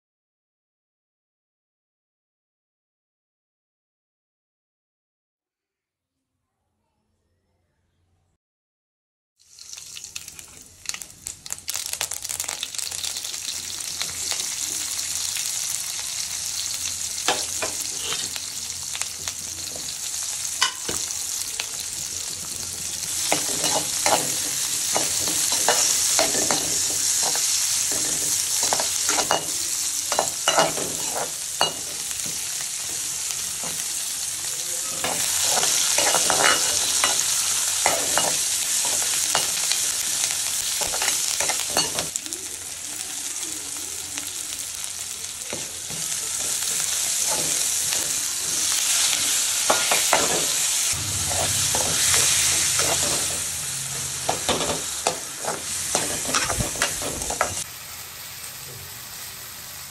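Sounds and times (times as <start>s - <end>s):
oil sizzling in a pan: 9.4s - 59.9s
metal ladle scraping a pan: 17.4s - 18.4s, 23.2s - 29.5s, 35.0s - 39.7s, 45.9s - 57.6s.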